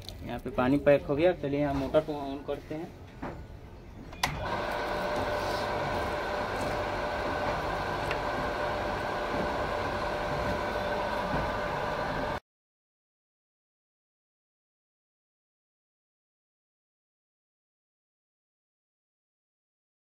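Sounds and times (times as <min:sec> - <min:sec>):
water pump motor humming: 0:04.3 - 0:12.4.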